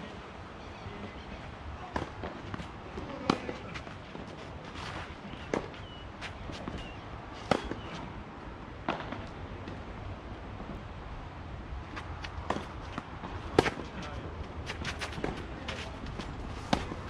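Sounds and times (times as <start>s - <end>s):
footsteps on clay: 11.9s - 17.0s
racket striking tennis ball: 12.2s - 14.0s, 16.6s - 17.0s.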